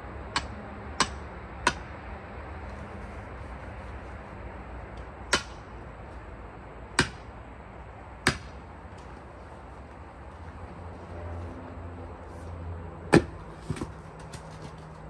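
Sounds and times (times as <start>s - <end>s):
sledgehammer striking steel wedge: 0.3s - 1.9s, 5.3s - 5.6s, 7.0s - 7.3s, 8.2s - 8.6s.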